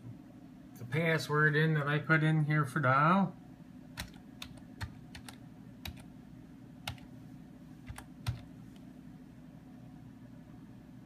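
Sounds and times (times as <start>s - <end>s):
low steady hum: 0.0s - 11.0s
computer keyboard keystroke clicks: 4.0s - 6.1s, 6.9s - 7.1s, 7.9s - 8.5s.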